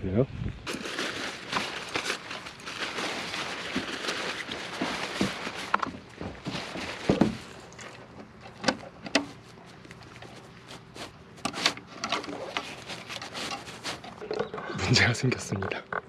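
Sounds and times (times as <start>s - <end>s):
camping gear knocks and clicks: 4.7s - 14.8s.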